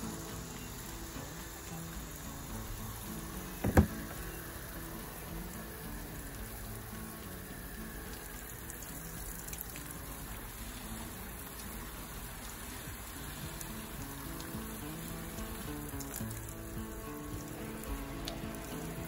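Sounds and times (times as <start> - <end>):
hose water spraying on plastic: 0.0 - 19.0.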